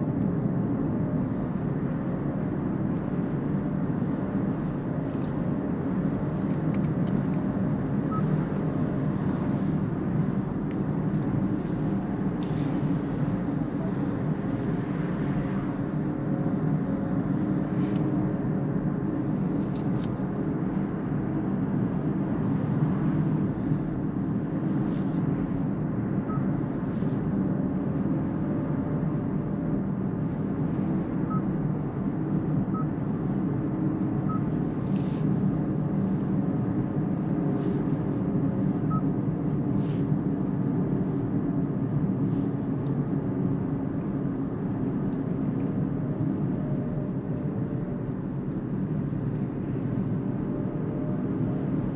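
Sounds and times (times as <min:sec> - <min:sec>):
road and tyre noise in car cabin: 0:00.0 - 0:51.9.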